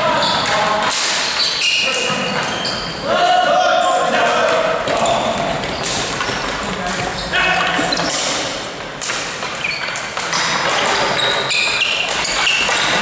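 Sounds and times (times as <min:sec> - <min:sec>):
sticks and ball knocking: 0:04.2 - 0:13.0
short high squeaks: 0:11.0 - 0:13.0.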